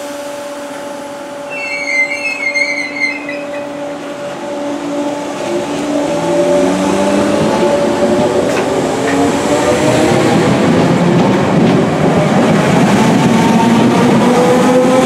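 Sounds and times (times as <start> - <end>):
electric train hum: 0.0 - 15.0
low train whine: 0.0 - 15.0
high squeal: 1.5 - 4.0.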